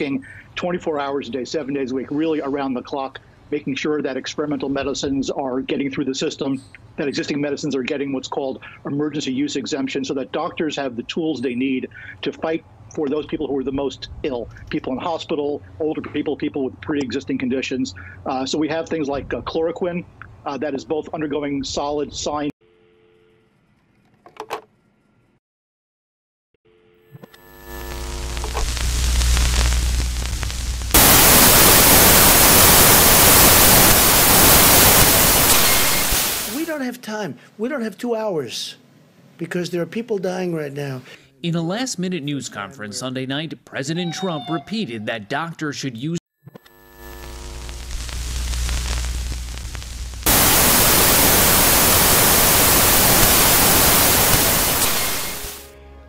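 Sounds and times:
crackling clicks: 27.2s - 36.7s, 46.5s - 55.6s
loud tv static hiss: 27.5s - 36.8s, 46.8s - 55.7s
low electrical hum: 27.8s - 34.2s, 47.0s - 53.2s.

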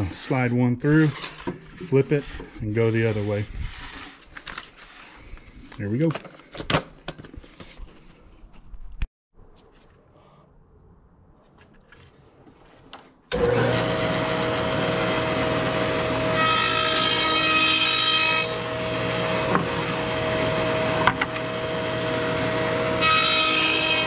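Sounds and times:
saw blade rasping through wood: 0.0s - 4.2s, 23.0s - 24.0s
table saw motor running: 13.3s - 24.0s.

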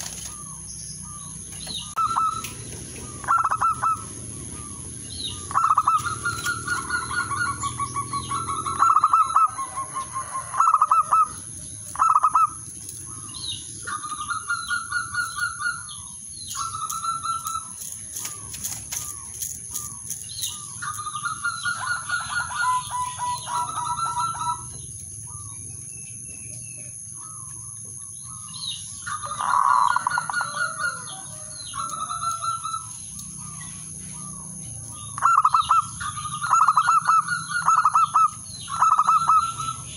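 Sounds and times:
wing flapping: 0.0s - 0.5s, 16.9s - 21.0s
dove cooing: 0.0s - 25.6s, 28.3s - 39.9s.

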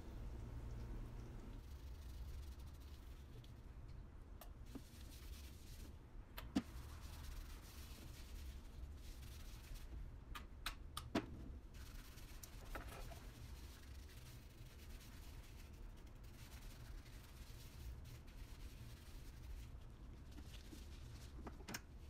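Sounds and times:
steady low hum: 0.0s - 7.5s
gloved hand rubbing hair: 1.6s - 3.6s, 6.7s - 9.9s, 11.8s - 21.4s.

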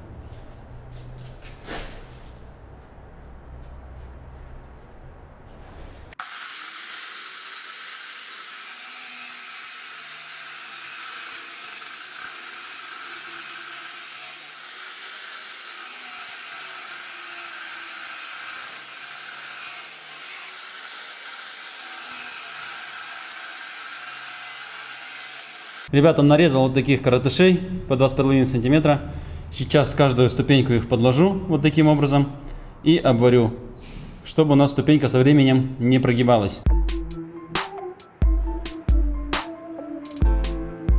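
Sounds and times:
angle grinder cutting steel: 6.2s - 25.9s.

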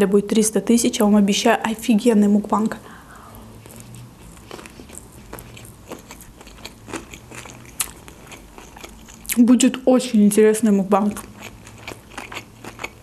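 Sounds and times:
person chewing: 3.0s - 9.5s, 11.0s - 13.0s.

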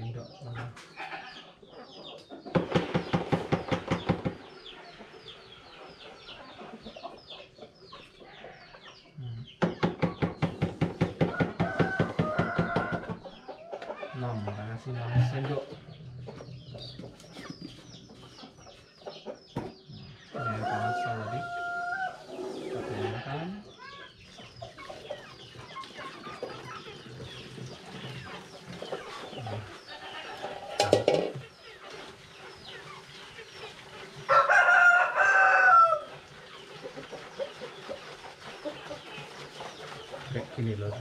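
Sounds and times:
rooster crowing: 11.2s - 13.2s, 20.4s - 22.4s, 34.3s - 36.1s.

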